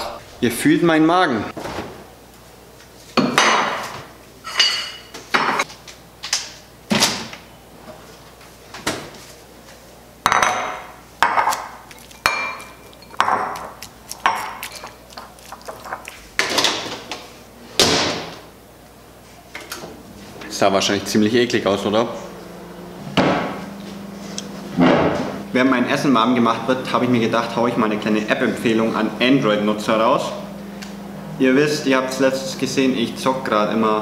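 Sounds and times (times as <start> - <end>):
ceramic bowl knocking on countertop: 12.3 - 13.7.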